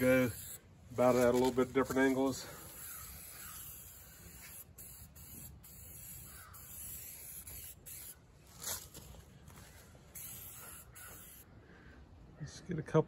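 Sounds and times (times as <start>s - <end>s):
spray paint can hissing: 0.0s - 8.9s, 10.1s - 11.4s
crow cawing: 2.8s - 3.8s, 6.2s - 6.8s, 10.8s - 11.4s.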